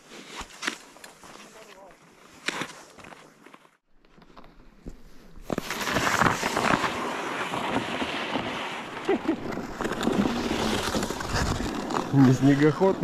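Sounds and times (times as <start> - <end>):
ice skates scraping on ice: 0.0 - 3.8, 5.1 - 13.0
sled dragging on ice: 5.4 - 13.0.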